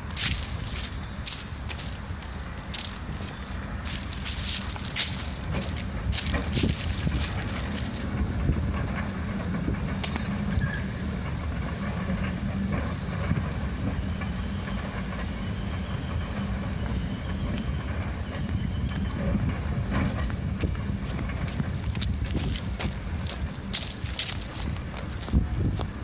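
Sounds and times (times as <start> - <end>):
tram rumble and hum: 0.0 - 26.0
wheels clicking on track: 0.0 - 26.0.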